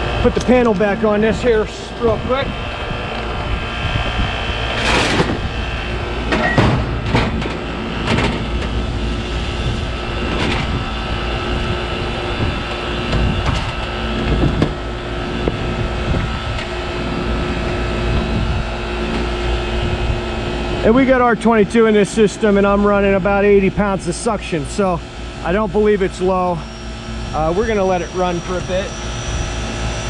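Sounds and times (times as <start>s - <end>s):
air conditioning unit running: 0.0s - 30.0s
sheet metal panel clanking: 6.2s - 8.8s.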